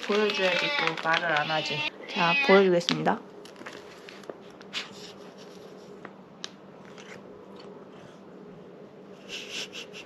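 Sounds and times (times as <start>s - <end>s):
plastic packet crinkling: 0.0s - 1.9s.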